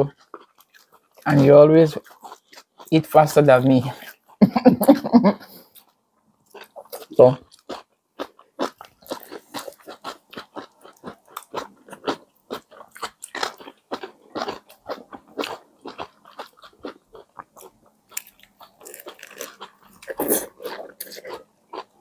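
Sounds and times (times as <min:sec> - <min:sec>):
chewing and biting sandwich: 0:06.5 - 0:22.0.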